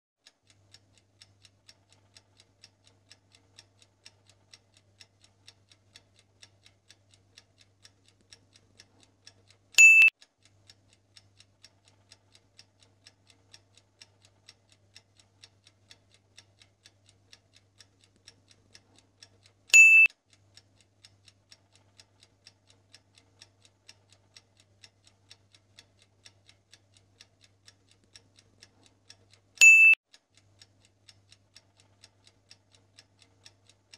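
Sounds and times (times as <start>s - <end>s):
clock ticking fast: 0.2s - 33.9s
high-pitched double beep: 9.8s - 10.1s, 19.8s - 20.1s, 29.6s - 30.0s.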